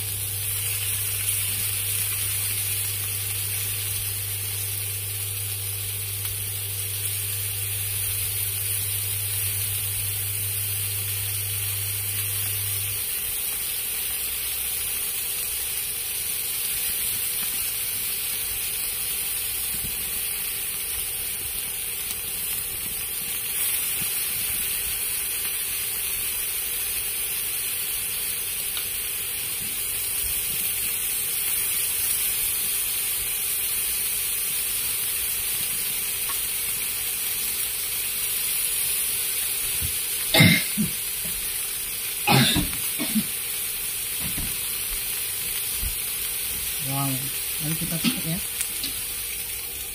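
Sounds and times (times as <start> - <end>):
clams sizzling on a pan: 0.0 - 49.9.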